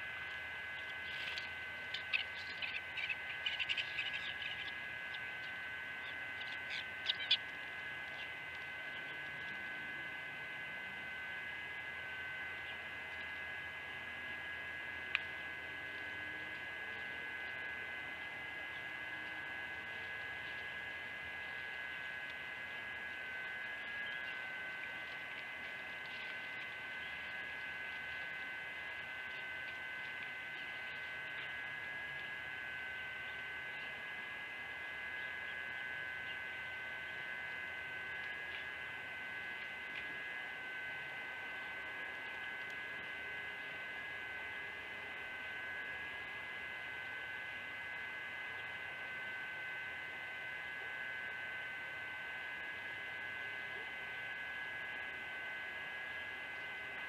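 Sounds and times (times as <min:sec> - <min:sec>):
high-pitched electrical hum: 0:00.0 - 0:57.0.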